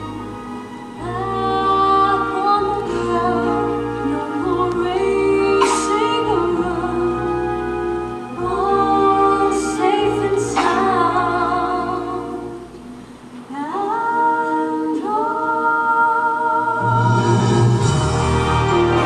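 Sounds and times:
soft orchestral accompaniment: 0:00.0 - 0:19.0
woman and girl singing: 0:13.5 - 0:17.0.

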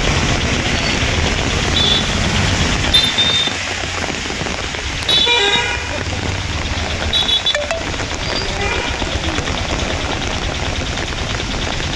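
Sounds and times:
traffic noise: 0:00.0 - 0:11.9
vehicle horns honking: 0:05.1 - 0:06.0, 0:07.1 - 0:09.0.

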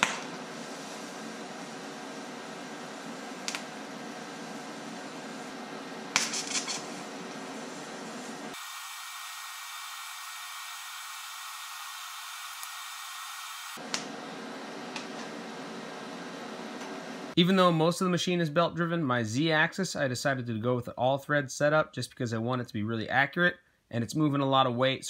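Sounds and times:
arc welding hiss and hum: 0:00.0 - 0:17.4.

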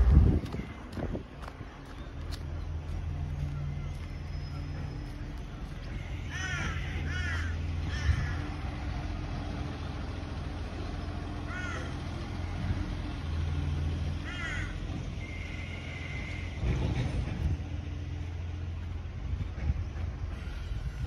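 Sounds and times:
low engine rumble: 0:00.0 - 0:21.0
crow cawing: 0:06.1 - 0:08.5, 0:11.5 - 0:12.0, 0:14.2 - 0:14.8.

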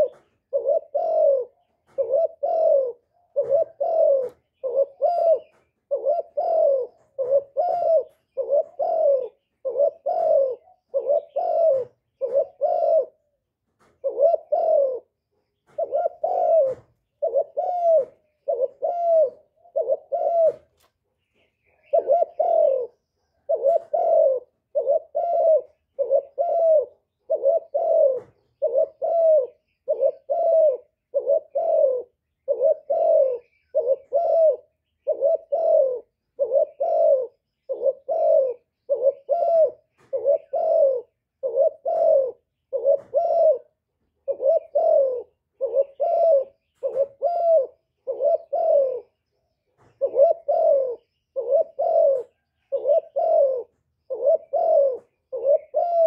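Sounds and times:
dove cooing: 0:00.0 - 0:56.0.

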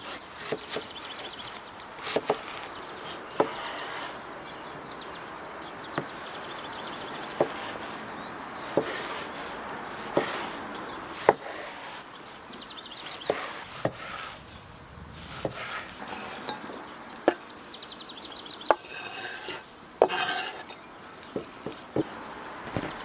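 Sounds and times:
faint birds chirping: 0:00.0 - 0:23.0
knife chopping on wooden board: 0:00.4 - 0:00.9, 0:02.0 - 0:02.5, 0:03.3 - 0:03.6, 0:07.3 - 0:07.8, 0:08.6 - 0:09.3, 0:10.0 - 0:12.0, 0:13.1 - 0:14.1, 0:18.7 - 0:20.7.

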